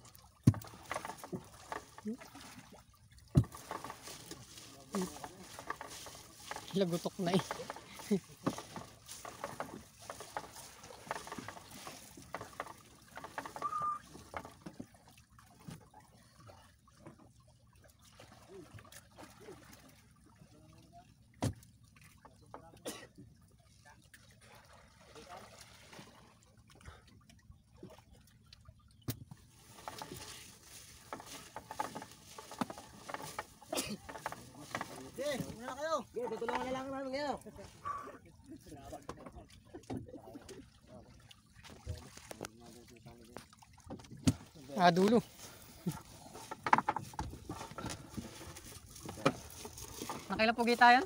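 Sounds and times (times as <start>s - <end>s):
fishing net hauled over boat: 0.0s - 51.0s
water splashing and dripping: 0.0s - 51.0s
brief high squeak: 13.6s - 14.0s.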